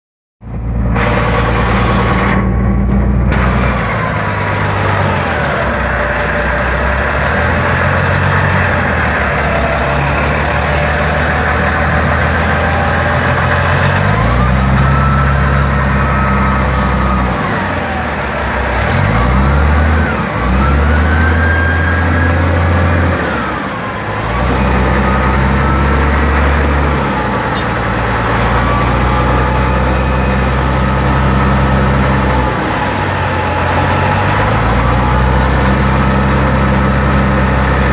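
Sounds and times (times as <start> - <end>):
diesel engine running: 0.4 - 37.9
whine rising and falling: 24.2 - 27.5.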